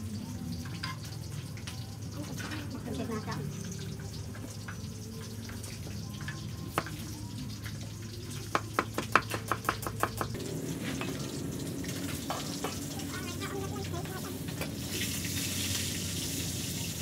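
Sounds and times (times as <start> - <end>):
knock on chopping board: 8.5 - 10.3
cleaver chopping on wooden board: 8.5 - 10.4.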